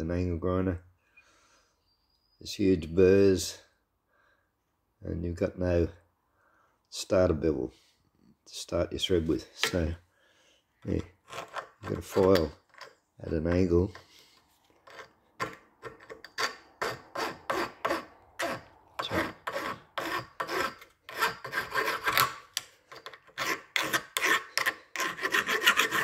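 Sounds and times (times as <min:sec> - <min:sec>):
hand file rasping on metal bolt: 0:11.2 - 0:14.1, 0:14.8 - 0:26.0.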